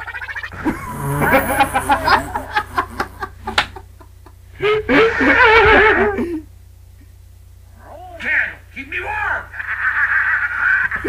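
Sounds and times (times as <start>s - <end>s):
men laughing hard: 0.6s - 6.4s.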